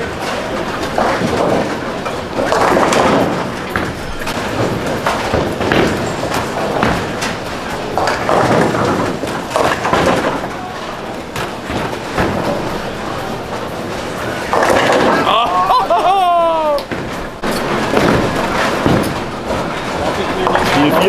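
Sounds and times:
balls hitting pins: 0:00.0 - 0:21.0
bowling balls rolling: 0:00.0 - 0:21.0
indistinct voices: 0:14.4 - 0:16.9.

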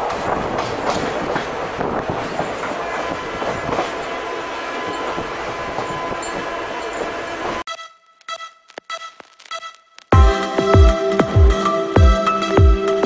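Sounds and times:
train wheels clacking on rails: 0:00.0 - 0:07.2.

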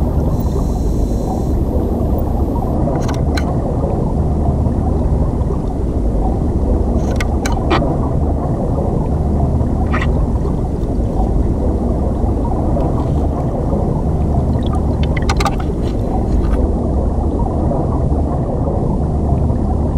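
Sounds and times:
underwater river rumble: 0:00.0 - 0:19.9
underwater clicks: 0:00.1 - 0:03.6, 0:05.4 - 0:08.0, 0:09.8 - 0:16.6.

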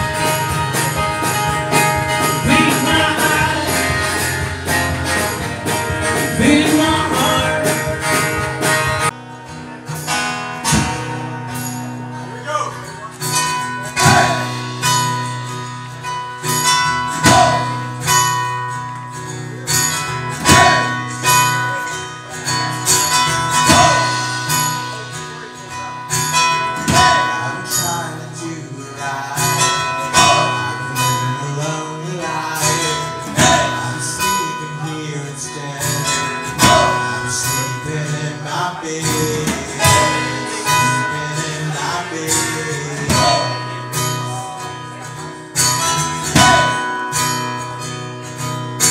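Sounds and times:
acoustic guitars strumming: 0:00.0 - 0:48.9
man singing: 0:01.3 - 0:09.1, 0:13.9 - 0:15.0, 0:17.1 - 0:17.9, 0:20.3 - 0:22.0, 0:23.1 - 0:45.2, 0:46.0 - 0:47.0.

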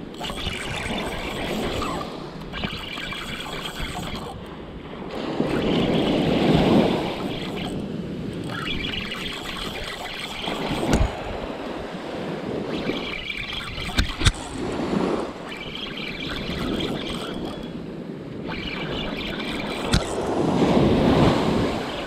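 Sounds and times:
surf washing up a beach: 0:04.5 - 0:08.3, 0:10.8 - 0:13.1, 0:14.5 - 0:15.6, 0:19.6 - 0:22.0.

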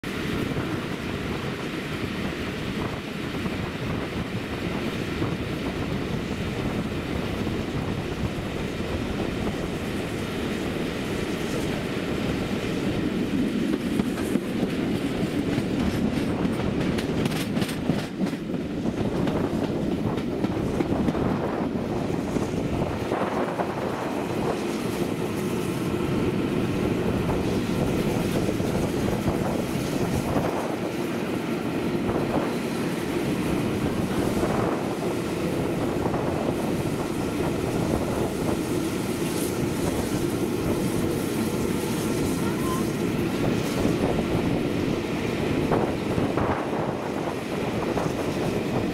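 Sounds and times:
train wheels rumbling on track: 0:00.0 - 0:48.9
wheels clacking over rail joints: 0:12.7 - 0:45.0.

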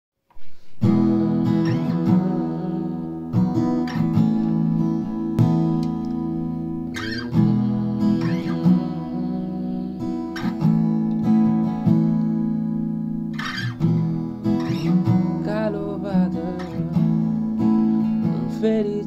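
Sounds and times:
strummed acoustic guitar chords: 0:00.4 - 0:19.0.

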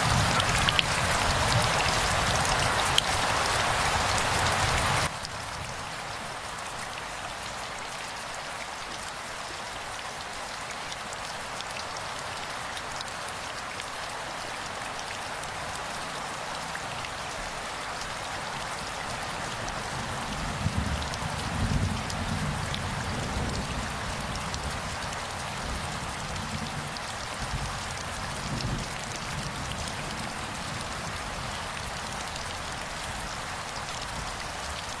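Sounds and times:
rain falling on wet ground: 0:00.0 - 0:35.0.

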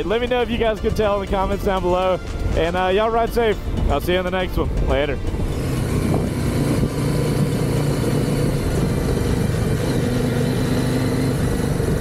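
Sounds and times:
motorcycle engine running: 0:04.8 - 0:12.0.

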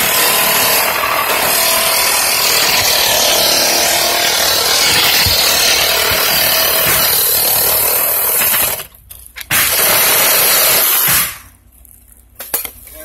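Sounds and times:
reciprocating saw cutting pipe: 0:00.0 - 0:08.8.

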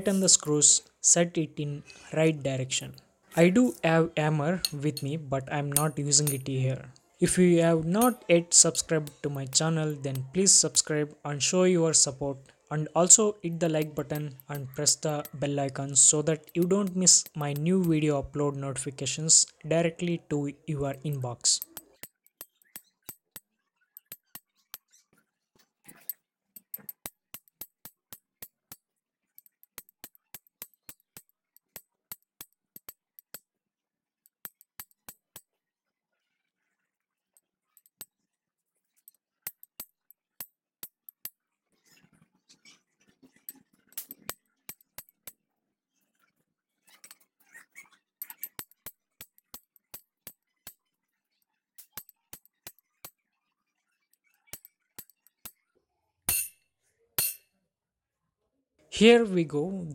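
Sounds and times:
metal bar striking impact driver: 0:04.6 - 0:06.5, 0:08.0 - 0:10.9, 0:13.6 - 0:15.4, 0:56.3 - 0:56.6, 0:57.2 - 0:57.4.

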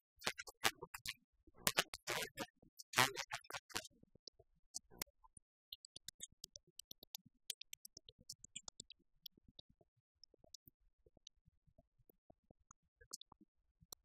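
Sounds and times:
faint irregular clicks: 0:00.0 - 0:14.0.

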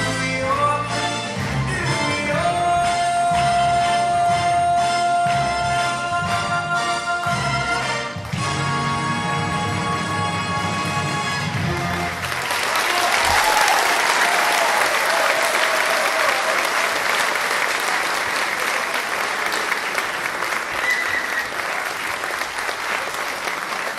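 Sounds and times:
audience applauding: 0:11.5 - 0:23.9.

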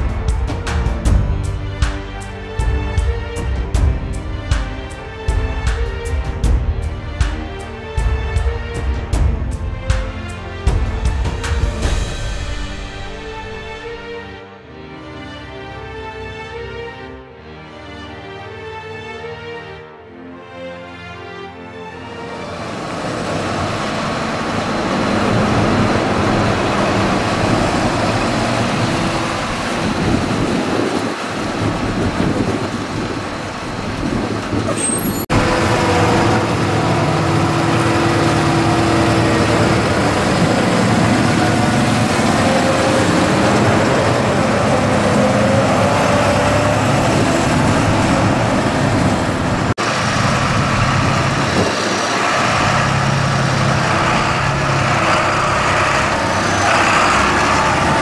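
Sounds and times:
tractor diesel engines running: 0:22.2 - 0:58.0.

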